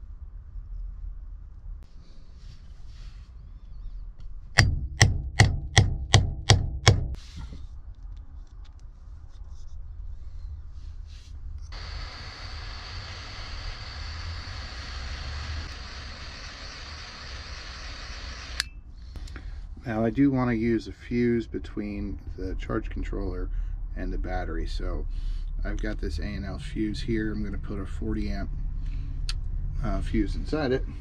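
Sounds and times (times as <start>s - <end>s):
hammer striking crimper: 4.6s - 7.2s
heat gun blowing hiss: 11.8s - 18.6s.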